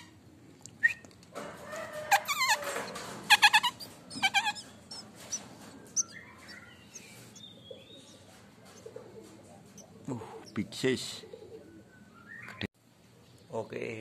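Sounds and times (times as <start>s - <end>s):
nestlings begging calls: 3.3s - 8.3s, 9.7s - 12.7s.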